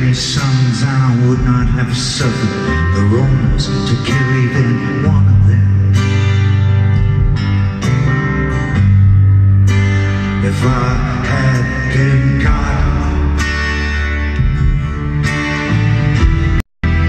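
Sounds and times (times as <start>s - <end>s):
acoustic guitar strumming: 0.0s - 17.0s
sustained low bass: 0.0s - 17.0s.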